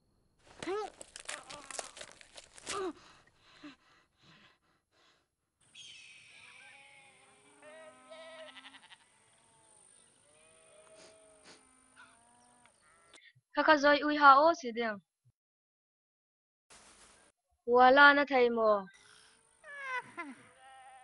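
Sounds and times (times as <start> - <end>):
boy grunting: 2.6 - 3.0
sheep bleating: 6.4 - 13.2, 20.4 - 21.0.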